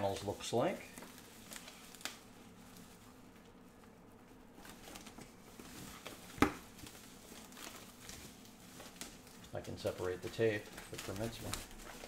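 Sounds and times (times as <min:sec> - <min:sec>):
plastic wrapping bag crinkling: 0:00.0 - 0:12.0.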